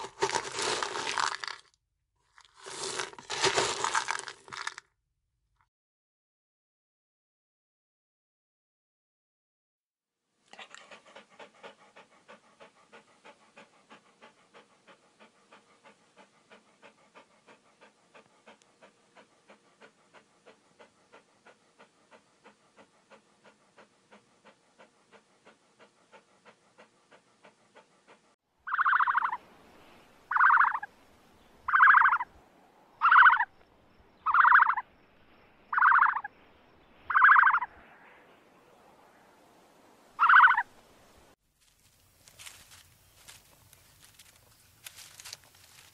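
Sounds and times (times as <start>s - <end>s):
small dog panting: 10.5s - 29.4s, 30.3s - 30.9s, 31.7s - 32.3s
harsh animal sound: 30.3s - 30.9s, 31.7s - 32.3s, 33.0s - 33.5s.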